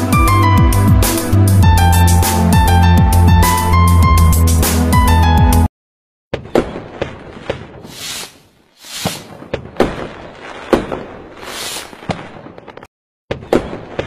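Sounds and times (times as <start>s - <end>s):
fireworks bangs and crackles: 6.3s - 14.0s
rushing hisses of fireworks: 7.7s - 12.3s.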